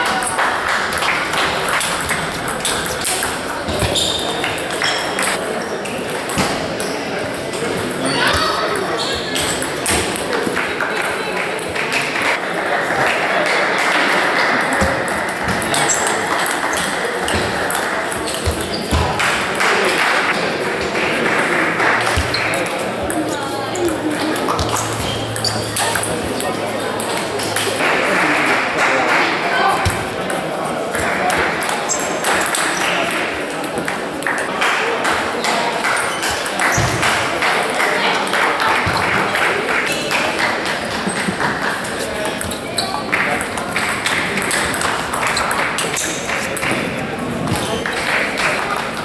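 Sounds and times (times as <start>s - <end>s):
ping-pong from other tables: 0.0s - 49.0s
voices in large hall: 0.0s - 49.0s
table tennis balls clicking: 40.9s - 46.9s.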